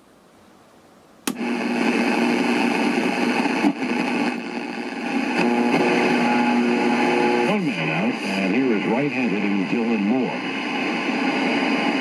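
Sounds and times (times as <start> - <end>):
loud radio static hiss: 1.3 - 12.0.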